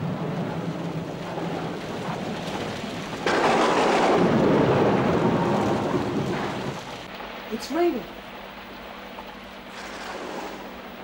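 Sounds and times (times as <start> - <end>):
loud thunderclap: 0.0 - 7.1
steady rain: 0.0 - 11.0.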